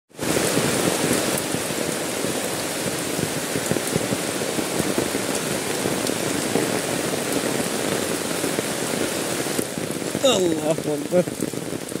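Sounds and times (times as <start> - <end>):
heavy rain on umbrella: 0.1 - 12.0.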